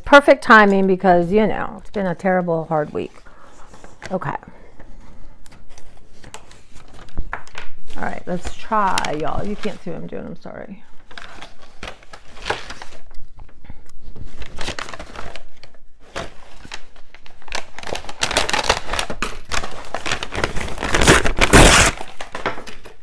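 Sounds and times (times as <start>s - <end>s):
paper crinkling and rustling: 2.6s - 23.0s
paper ripping: 14.4s - 23.0s.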